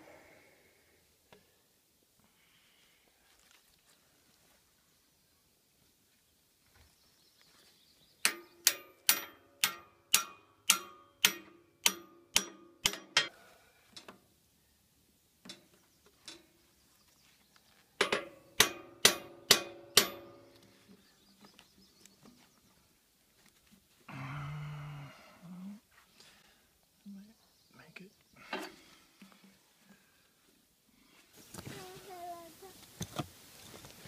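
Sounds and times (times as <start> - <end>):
hammer striking metal clamp: 8.3 - 13.3, 18.0 - 20.5.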